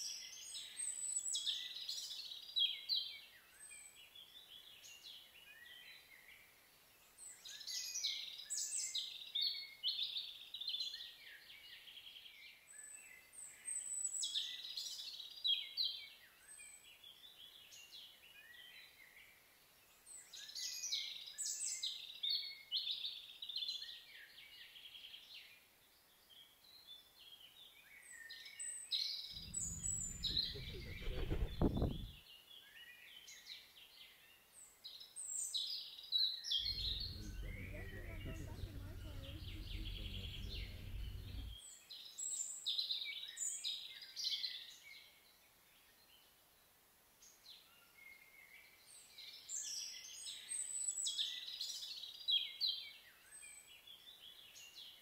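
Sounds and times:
low rumble: 29.4s - 32.2s, 36.6s - 41.6s
songbirds warbling: 29.4s - 32.2s.

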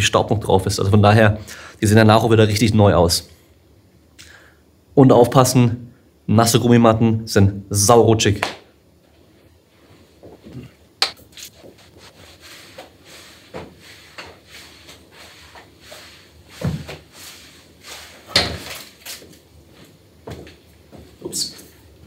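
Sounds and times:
faint hiss: 9.3s - 20.1s
rubbing: 11.3s - 18.4s
objects knocking and thumping: 16.6s - 17.1s, 18.3s - 18.9s.

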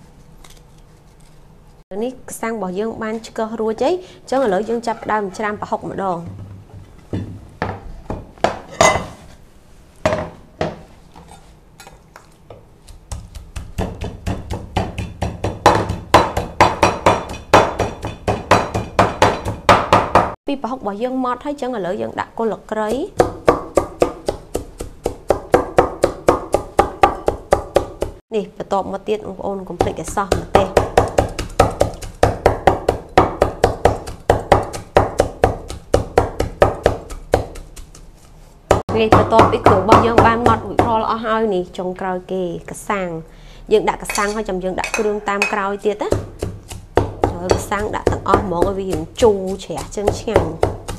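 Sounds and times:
cleaver chopping on wooden board: 13.1s - 20.4s, 23.2s - 28.2s, 30.3s - 38.0s, 46.1s - 50.9s.

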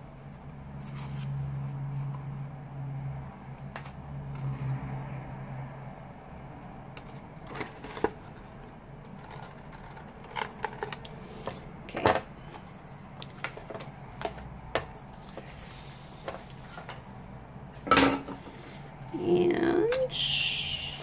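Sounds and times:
paper handling: 12.4s - 17.0s.

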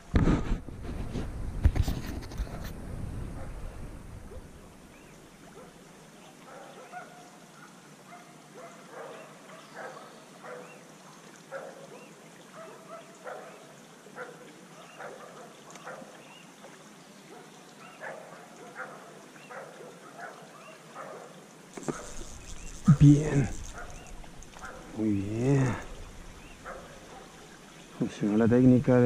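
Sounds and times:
shallow creek hissing: 4.2s - 29.0s
short animal calls: 21.8s - 27.4s.

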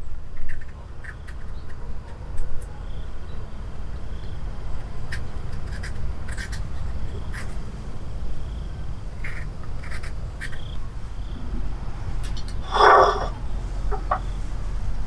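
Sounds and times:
knife scraping fruit peel: 5.2s - 7.6s
faint bird calls: 8.6s - 14.6s
low rumble: 10.2s - 15.0s.

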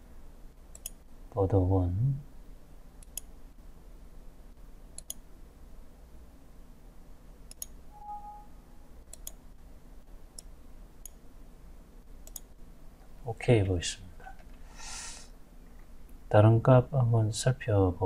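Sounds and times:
faint low hum: 0.0s - 18.0s
computer mouse buttons clicking: 0.7s - 1.0s, 3.0s - 3.3s, 5.0s - 5.2s, 7.5s - 7.8s, 9.1s - 9.4s, 12.2s - 12.5s
short faint tone: 8.0s - 8.8s.

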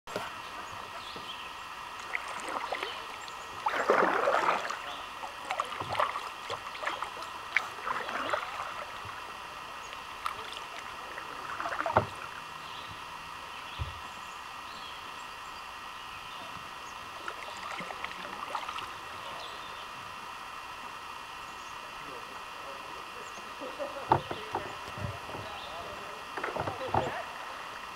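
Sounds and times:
kayak paddle splashing: 1.7s - 13.1s, 16.6s - 19.6s, 23.5s - 27.9s.

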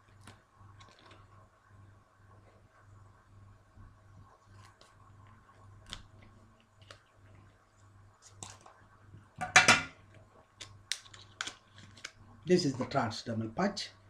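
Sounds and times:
packaging crinkling: 0.0s - 1.4s, 4.4s - 7.6s, 8.2s - 8.8s, 10.6s - 12.2s
packet rustling: 0.0s - 1.4s, 4.4s - 7.6s, 8.2s - 8.8s, 10.6s - 12.2s.

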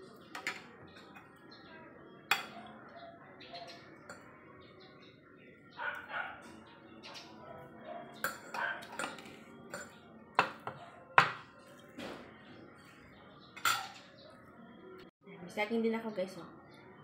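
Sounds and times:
cutlery clinking on ceramic plate: 2.3s - 2.6s, 8.2s - 11.5s, 13.6s - 14.1s.

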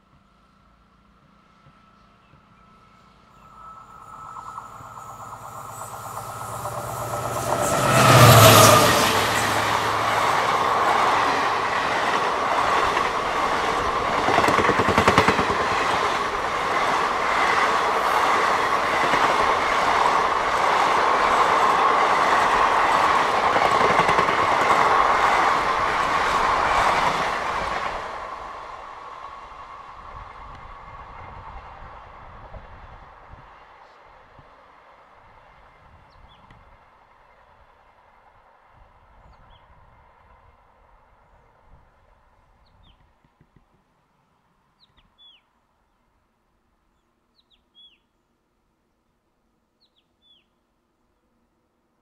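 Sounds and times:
passenger train passing: 0.0s - 42.5s.

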